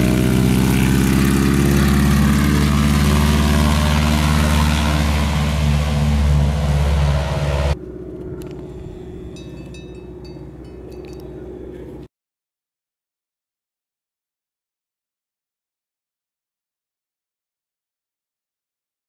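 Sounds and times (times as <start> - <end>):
propeller plane engine droning: 0.0 - 12.1.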